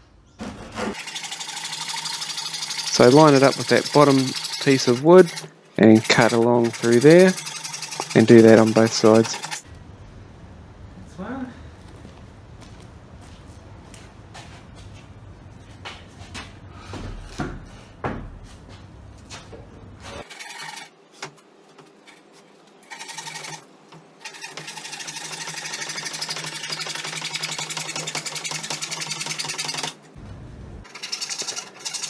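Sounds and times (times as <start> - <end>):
handsaw sawing wood: 0.5 - 9.6, 20.2 - 20.9, 22.8 - 23.6, 24.2 - 30.0, 30.9 - 32.0
footsteps: 11.7 - 20.2.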